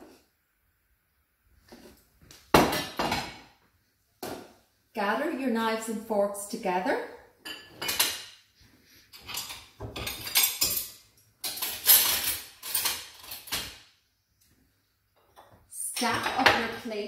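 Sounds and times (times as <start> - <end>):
crockery clinking: 7.4 - 8.4, 9.1 - 13.8
cutlery clattering: 7.4 - 8.4, 9.1 - 13.9.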